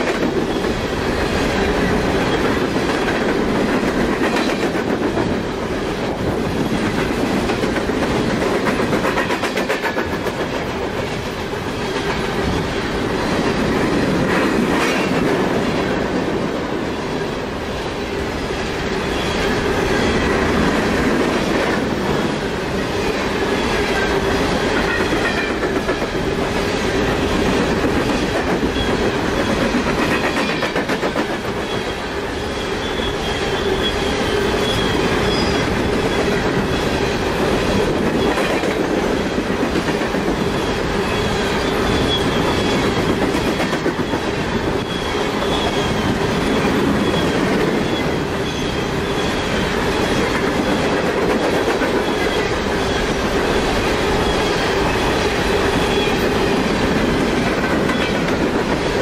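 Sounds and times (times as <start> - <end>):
train cars rumbling past: 0.0 - 59.0
faint high wheel squeals: 19.0 - 20.2, 31.6 - 36.9, 40.4 - 49.8, 52.0 - 56.6.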